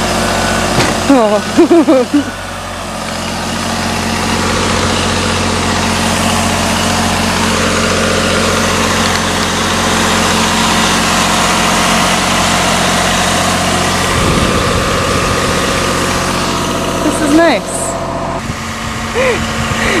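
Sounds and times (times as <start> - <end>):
boom lift engine running: 0.0 - 20.0.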